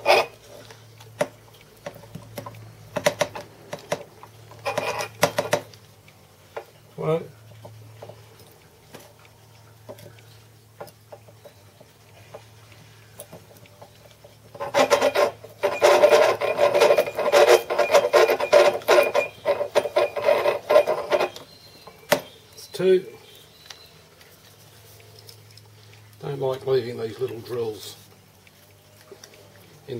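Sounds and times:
drill bit scraping metal: 0.0 - 0.4, 14.6 - 21.5.

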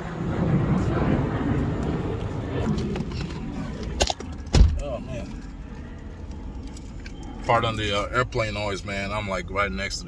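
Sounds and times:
airplane drone: 0.0 - 10.0
car door shutting: 4.4 - 4.9.

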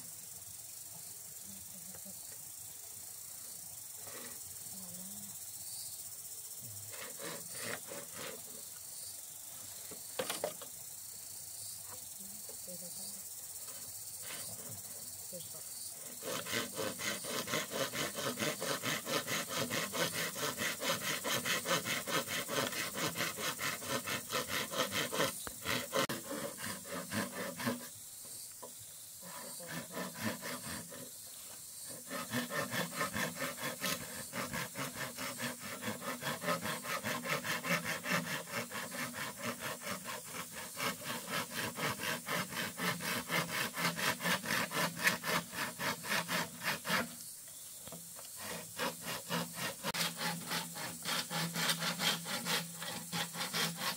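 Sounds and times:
machete scraping bamboo: 6.9 - 8.6, 10.1 - 10.7, 16.0 - 27.9, 28.6 - 47.2, 47.9 - 53.9.

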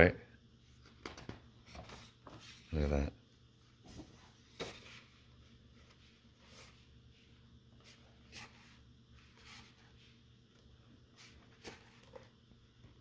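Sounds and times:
room hum: 0.0 - 13.0
paper pages turning: 1.1 - 2.7, 11.2 - 12.3.

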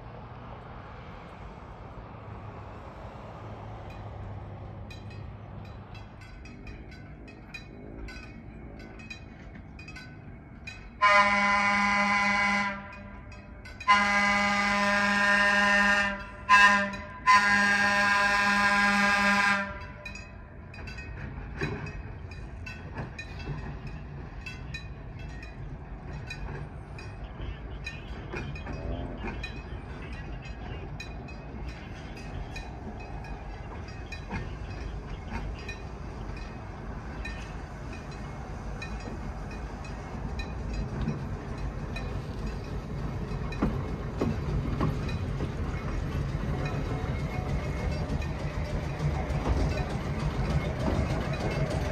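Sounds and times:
train rolling rumble: 0.0 - 51.9
train horn blasts: 11.0 - 13.2, 13.8 - 20.1.

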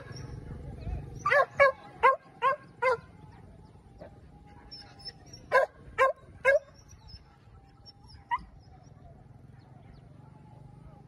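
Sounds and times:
dog barking: 1.2 - 3.1, 5.5 - 6.7.

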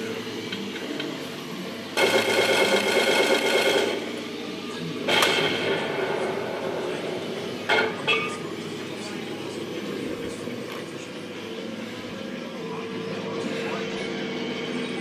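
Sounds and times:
loud rattling buzz: 2.0 - 4.4
cannon fire sound effect: 5.1 - 6.4.

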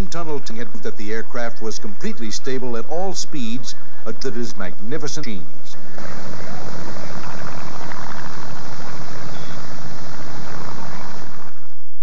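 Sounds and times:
propeller plane engine drone: 5.8 - 11.8.

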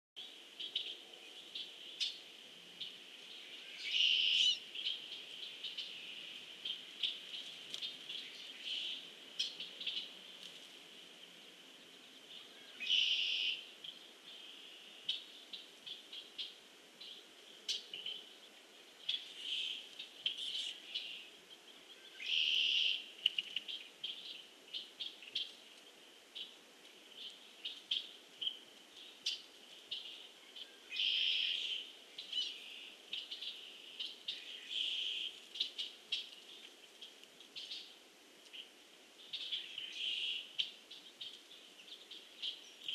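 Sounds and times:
birds chirping: 0.2 - 10.4
loud long bird calls: 2.8 - 7.2, 12.3 - 16.6, 19.0 - 25.5, 30.0 - 36.3.

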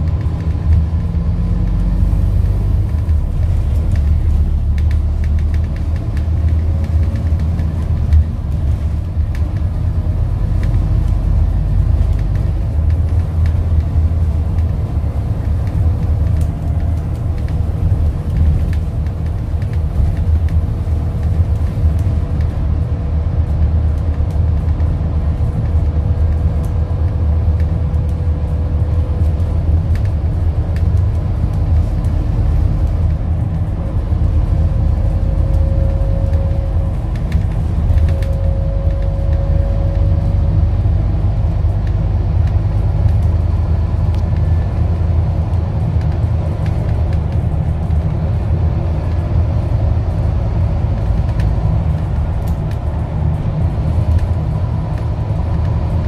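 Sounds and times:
bus engine rumble: 0.0 - 56.0.

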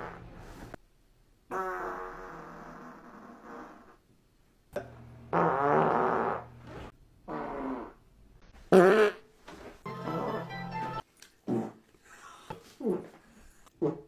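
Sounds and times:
farts: 0.0 - 0.3, 1.5 - 4.0, 5.3 - 8.0, 8.7 - 9.2, 11.4 - 11.8.

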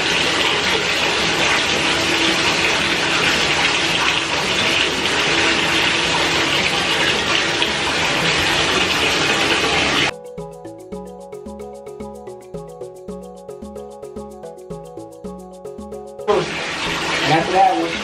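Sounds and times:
water pouring from tap: 0.0 - 10.1, 16.3 - 18.0
background music: 0.0 - 18.0.

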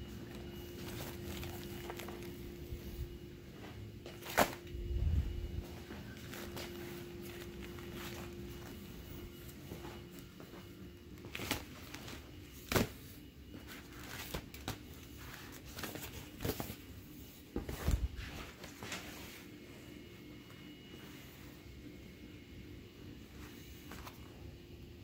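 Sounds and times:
inflatable toys crinkling: 0.3 - 3.0.

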